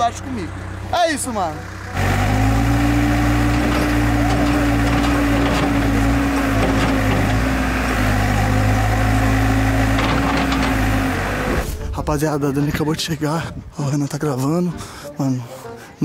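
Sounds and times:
diesel engine running under load: 0:00.0 - 0:11.9.

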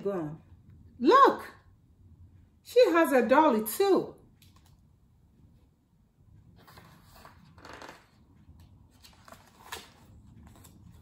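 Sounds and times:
paper page turning: 0:06.6 - 0:08.2, 0:08.9 - 0:11.0.

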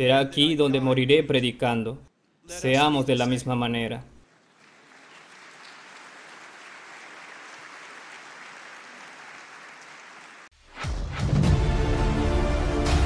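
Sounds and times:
audience applauding: 0:04.3 - 0:10.5
music: 0:10.6 - 0:13.0.

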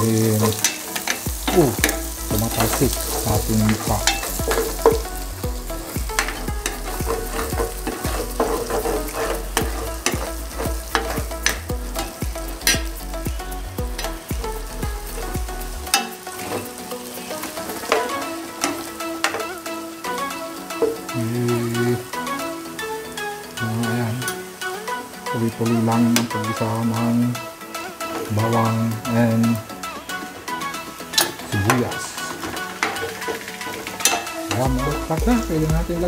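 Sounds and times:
garlic sizzling in hot oil: 0:00.0 - 0:36.0
metal spoon scraping a pot: 0:06.2 - 0:12.2.

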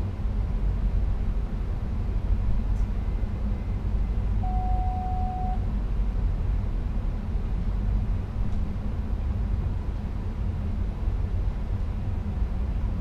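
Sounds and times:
train low rumble: 0:00.0 - 0:13.0
steady beep: 0:04.4 - 0:05.6.

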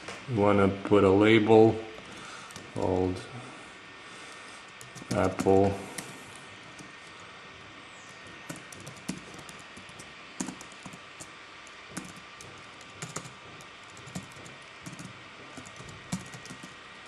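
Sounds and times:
keyboard keystrokes: 0:04.8 - 0:06.1, 0:08.4 - 0:11.3, 0:11.9 - 0:16.8.

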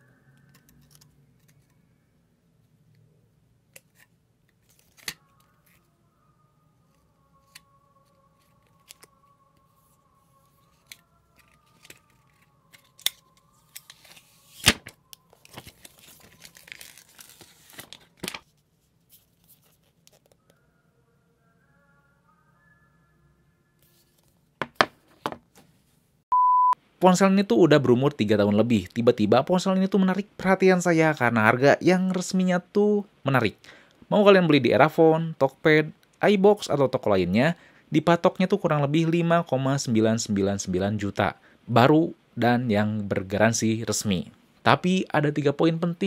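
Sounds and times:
quiet background music: 0:00.0 - 0:25.2.

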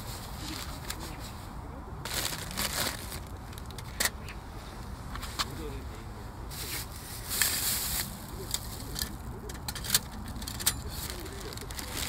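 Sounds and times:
plastic bag crinkling: 0:02.0 - 0:04.0, 0:10.0 - 0:12.0.

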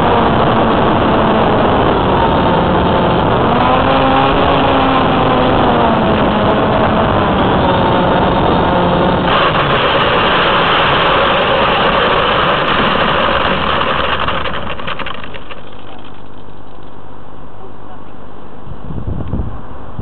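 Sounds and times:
plane scraping along asphalt: 0:00.0 - 0:17.0
electric motor and propeller whining: 0:00.0 - 0:17.1.

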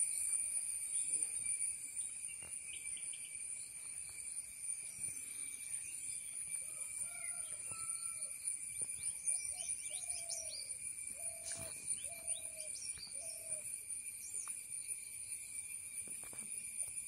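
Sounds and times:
insect trilling: 0:00.0 - 0:17.0
faint bird chirps: 0:04.8 - 0:14.6.

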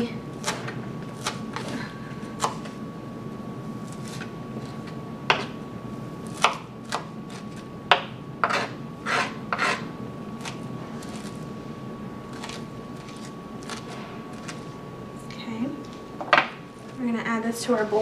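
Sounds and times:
knife chopping on plastic board: 0:05.3 - 0:05.5, 0:06.3 - 0:09.8.

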